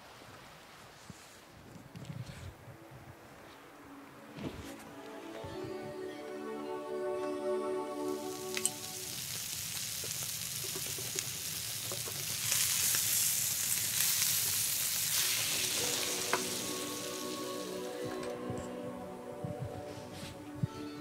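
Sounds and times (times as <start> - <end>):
steaks sizzling in a pan: 8.1 - 18.1.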